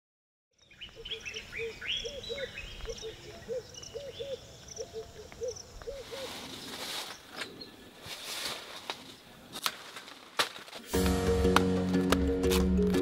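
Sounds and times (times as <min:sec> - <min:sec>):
birds chirping: 0:00.5 - 0:09.5
bird hooting: 0:01.0 - 0:06.8.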